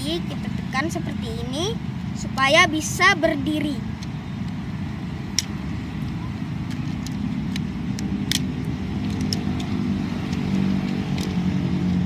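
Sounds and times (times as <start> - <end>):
plastic toy parts clicking: 6.6 - 11.4.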